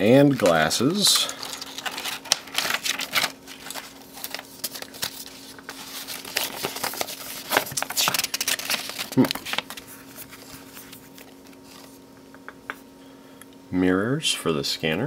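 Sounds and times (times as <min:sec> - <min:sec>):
plastic and paper crinkling: 0:00.0 - 0:12.0.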